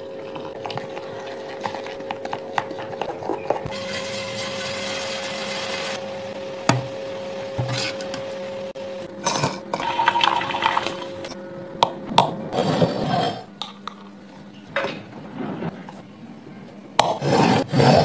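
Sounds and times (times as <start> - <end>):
metal jar scraping: 7.6 - 8.2.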